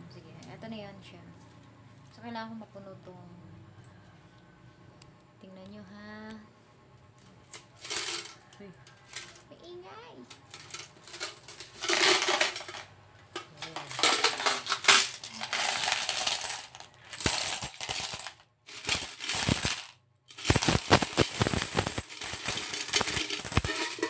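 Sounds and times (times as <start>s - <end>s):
coins clinking into plastic bowl: 7.5s - 9.4s, 10.5s - 24.0s.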